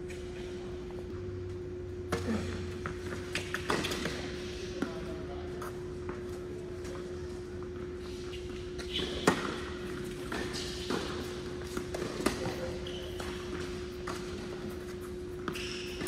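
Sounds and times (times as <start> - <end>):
sneakers squeaking on court: 8.2 - 16.0.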